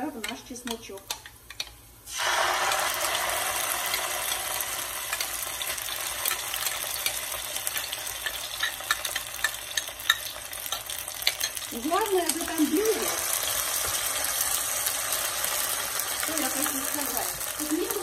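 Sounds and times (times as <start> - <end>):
sauce sizzling in hot oil: 1.4 - 18.0
oil crackling: 1.5 - 18.0.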